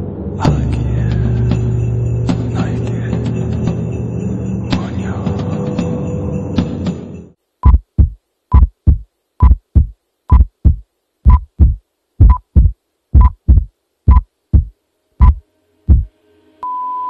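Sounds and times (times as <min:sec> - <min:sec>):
low drone: 0:00.0 - 0:06.6
heartbeat thumps: 0:07.6 - 0:16.1.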